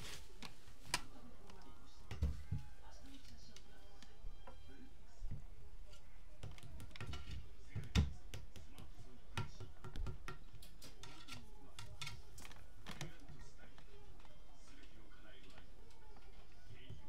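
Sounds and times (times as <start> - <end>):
cat batting toy on table: 6.4 - 8.7.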